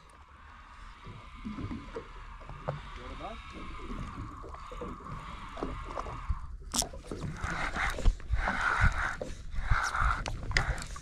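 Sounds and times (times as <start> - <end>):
boat noise: 0.0 - 11.0.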